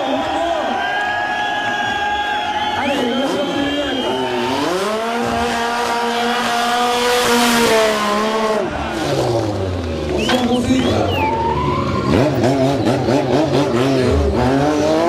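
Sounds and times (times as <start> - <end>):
motorcycle engine revving: 2.8 - 15.0
tyre squealing: 10.1 - 15.0.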